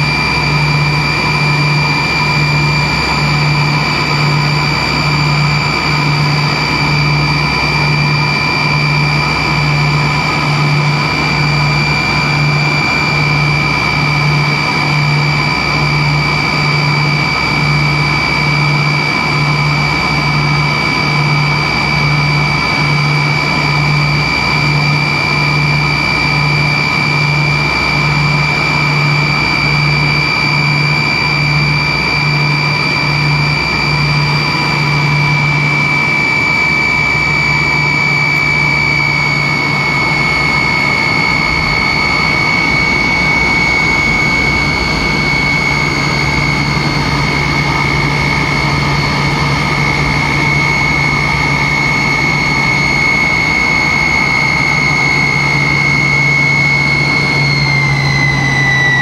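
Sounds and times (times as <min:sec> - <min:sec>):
jet engines whining: 0:00.0 - 0:59.0
low pulsing throb: 0:00.0 - 0:59.0.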